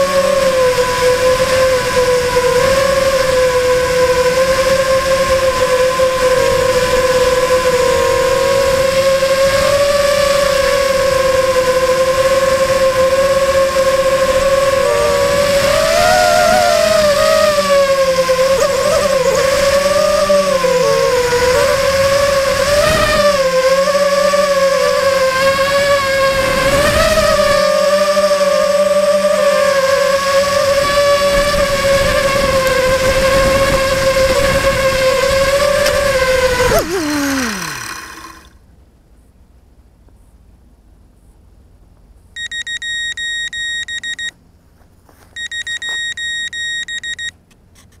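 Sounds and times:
electric motors whining: 0.0 - 38.6
high-pitched electronic beeping: 42.4 - 44.3, 45.4 - 47.4.

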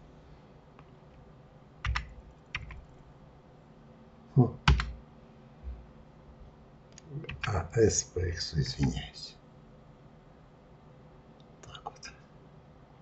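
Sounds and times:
computer keyboard key presses: 1.8 - 3.0, 4.6 - 5.0.

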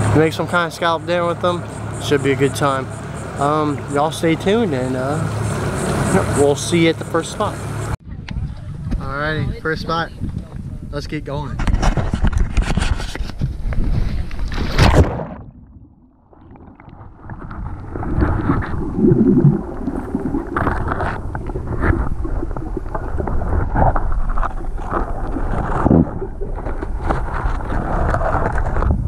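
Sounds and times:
wind: 0.0 - 29.0
muffled underwater rumble: 7.9 - 10.9, 13.2 - 29.0.

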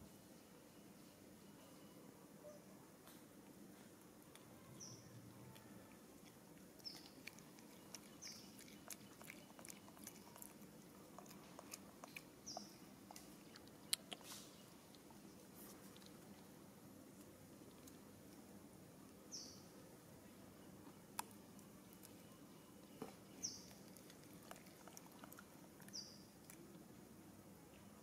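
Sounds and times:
monkey chewing food: 5.3 - 16.6, 23.6 - 26.8.

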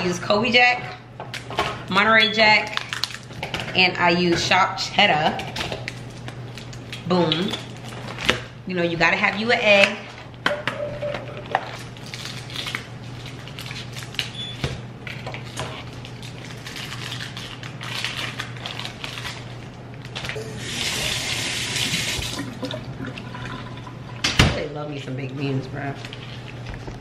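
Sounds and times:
sink tap running: 20.4 - 24.4.

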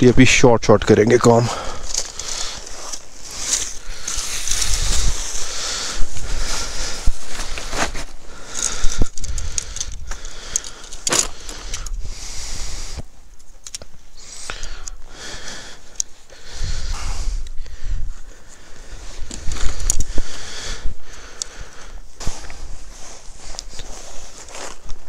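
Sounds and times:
tent poles and pegs clinking: 0.9 - 6.3, 7.2 - 12.0
nylon fabric rustling: 2.0 - 8.3.

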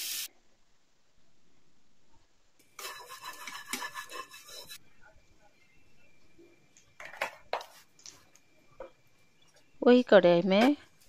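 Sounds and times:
spatula scraping a pan: 2.8 - 4.8.

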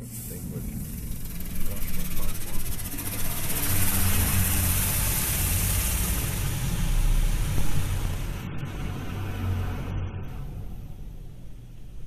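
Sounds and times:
water spray hissing on car: 0.0 - 8.5
low machine hum: 0.0 - 12.0.

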